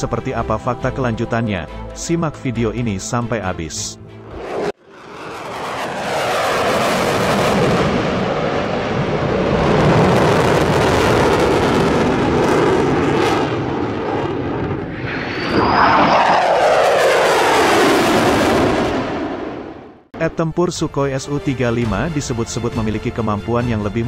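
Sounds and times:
jet flying past: 4.2 - 20.2.

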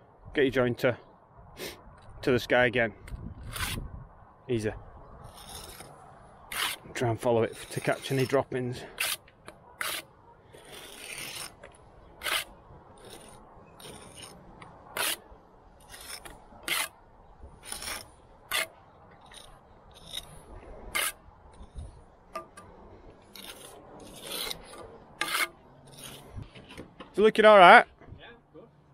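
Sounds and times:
trowel scraping mortar: 3.4 - 3.8, 5.2 - 17.0, 17.6 - 21.8, 23.2 - 26.8.

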